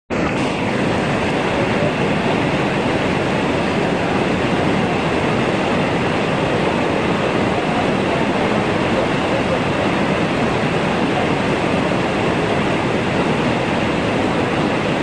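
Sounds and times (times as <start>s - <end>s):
waterfall rushing: 0.1s - 15.0s.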